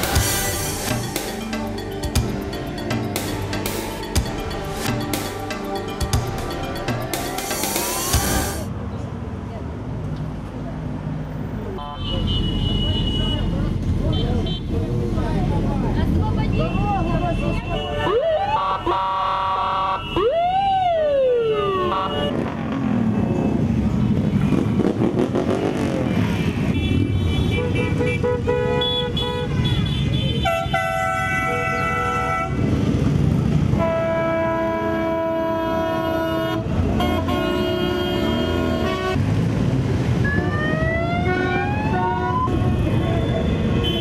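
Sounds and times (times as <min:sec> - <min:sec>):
rising tones: 0:00.0 - 0:08.7
horns honking: 0:11.8 - 0:14.8, 0:16.5 - 0:20.4, 0:21.6 - 0:23.8, 0:24.5 - 0:32.8, 0:33.7 - 0:39.5, 0:40.2 - 0:44.0.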